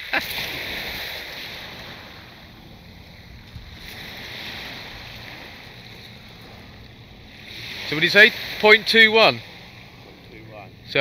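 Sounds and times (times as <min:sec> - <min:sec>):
sea washing on shore: 0:00.0 - 0:11.0
wind: 0:00.0 - 0:11.0.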